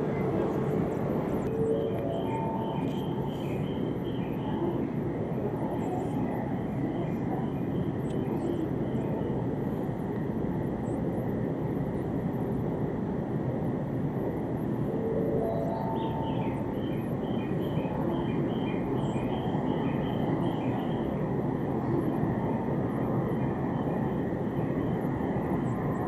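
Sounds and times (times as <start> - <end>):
low rumble of station platform: 0.0 - 26.0.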